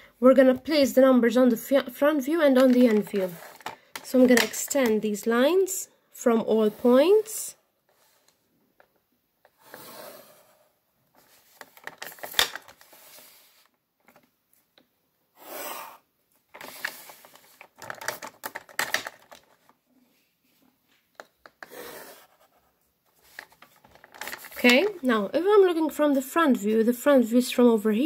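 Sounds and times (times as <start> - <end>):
plastic rulers clicking and knocking: 2.5 - 5.3, 17.6 - 19.7
pencil scratching on paper: 9.6 - 10.7, 21.6 - 22.8.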